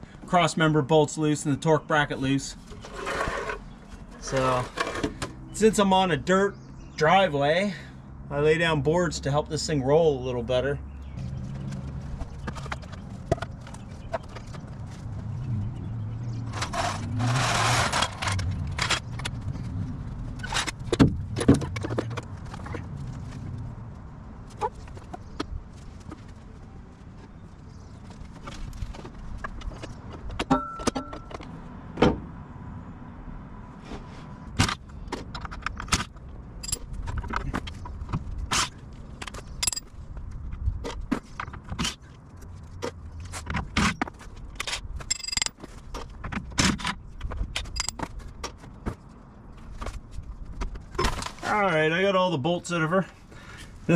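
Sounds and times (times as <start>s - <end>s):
metal tools clinking: 30.5s - 31.4s, 36.6s - 37.3s, 39.6s - 39.9s, 45.0s - 45.7s, 47.6s - 48.1s.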